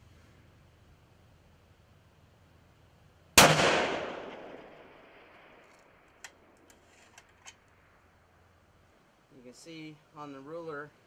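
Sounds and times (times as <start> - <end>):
rifle shot with echo: 3.4 - 6.6.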